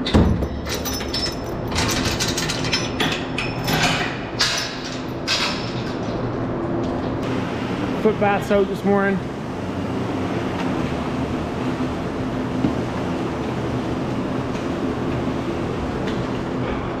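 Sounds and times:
chain rattling: 0.0s - 6.1s
metal gate clanking: 0.0s - 6.2s
machinery hum: 0.0s - 17.0s.

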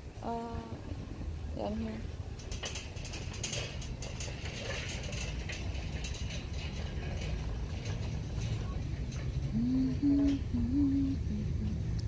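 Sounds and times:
cart wheels rumbling on concrete: 0.0s - 12.0s
metal basket rattling: 2.3s - 10.5s.

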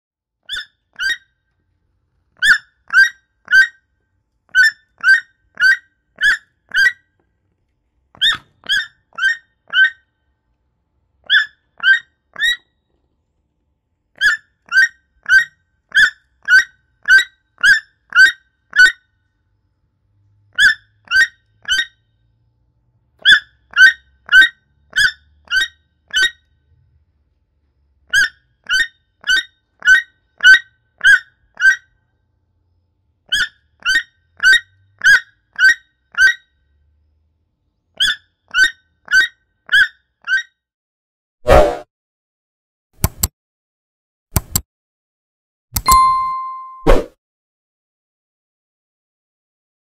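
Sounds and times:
toucan calling: 0.5s - 1.2s, 2.4s - 3.8s, 4.5s - 7.0s, 11.3s - 12.7s, 14.2s - 19.0s, 33.3s - 36.4s.

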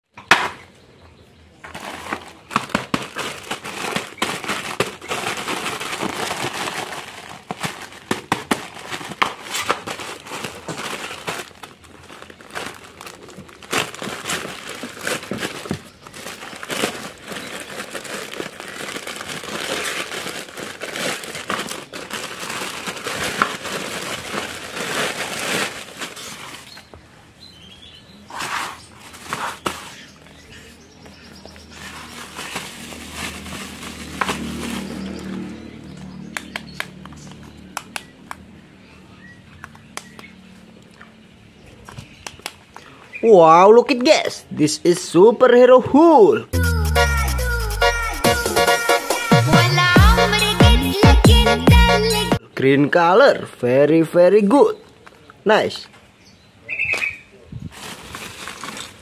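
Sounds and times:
plastic bag crinkling: 1.7s - 26.9s, 31.6s - 35.5s, 57.7s - 59.0s.

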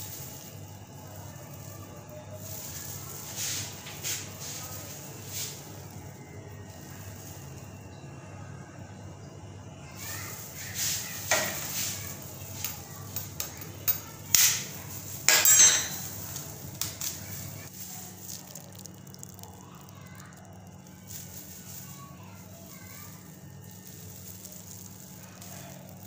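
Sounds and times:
utensils and dishes clinking: 0.0s - 7.7s, 10.0s - 18.2s.

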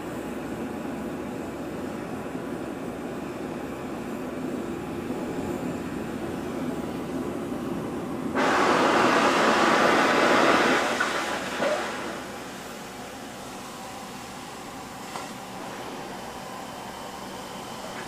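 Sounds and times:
cutting torch flame hiss: 7.7s - 18.0s
loud rushing oxygen hiss: 8.3s - 13.0s.

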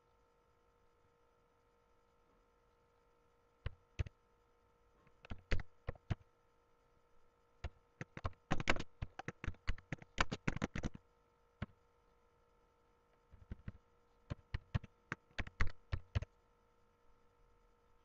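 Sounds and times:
computer keyboard typing: 5.2s - 6.2s, 7.6s - 11.0s, 13.4s - 16.3s.

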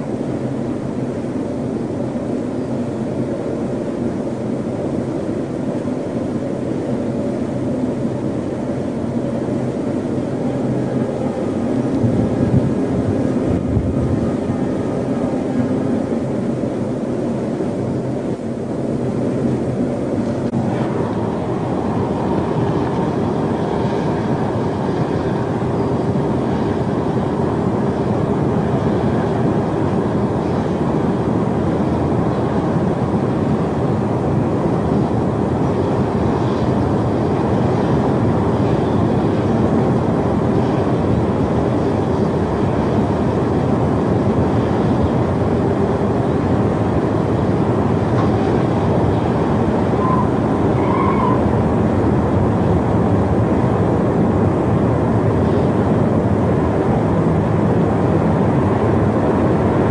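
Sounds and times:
faint hum: 0.0s - 23.7s
tornado wind roaring: 0.0s - 59.9s.

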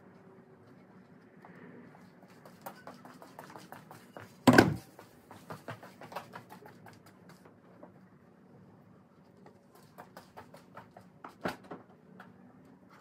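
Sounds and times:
loud heavy thump: 4.5s - 4.8s.

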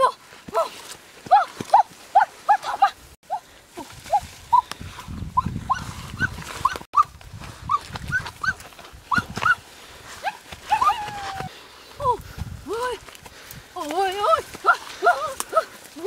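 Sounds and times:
rustling undergrowth: 0.0s - 16.0s
animal yelping: 5.4s - 7.1s.

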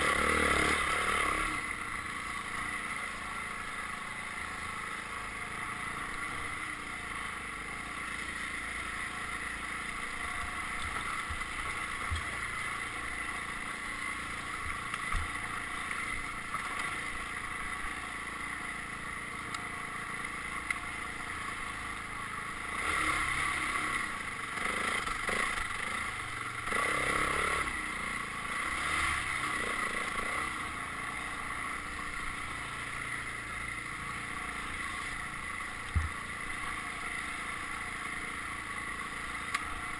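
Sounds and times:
dirt bike engine running: 0.0s - 39.9s.

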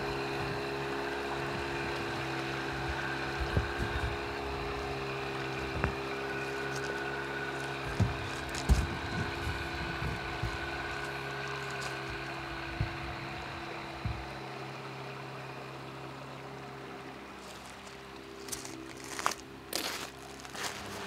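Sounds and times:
low thumps: 0.0s - 14.8s
outboard motor running: 0.0s - 21.0s.

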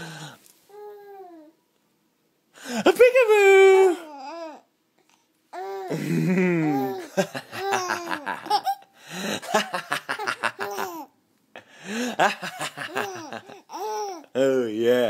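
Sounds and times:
baby laughing: 5.8s - 11.1s, 12.2s - 14.3s.

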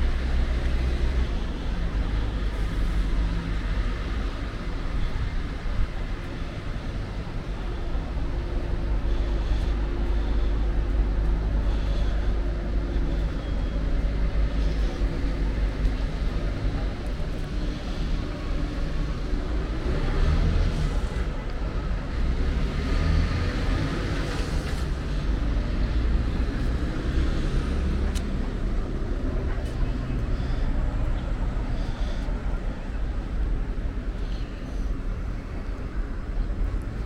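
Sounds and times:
low traffic rumble: 0.0s - 37.0s
vehicles passing: 0.0s - 37.0s
vehicle accelerating: 16.2s - 31.0s.

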